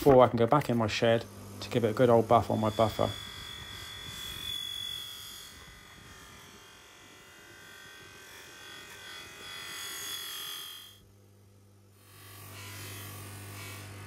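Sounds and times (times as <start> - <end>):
high whine: 0.0 - 11.1
buffing machine rasping hiss: 0.7 - 11.0.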